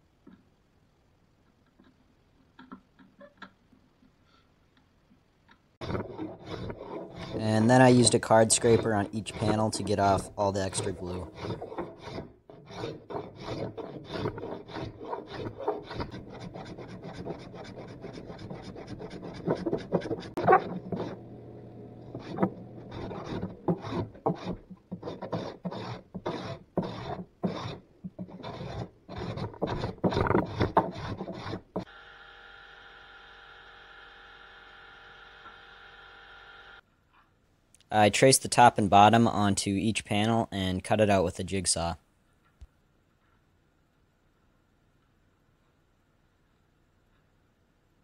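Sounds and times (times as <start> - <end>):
steady quiet hum: 0.0 - 48.0
card scraper scraping wood: 5.8 - 21.4, 22.0 - 31.9.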